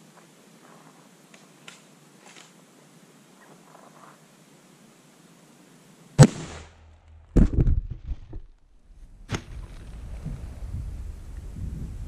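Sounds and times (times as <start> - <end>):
rifle shot crack: 6.2 - 7.6
heavy thud and clatter: 6.2 - 8.5.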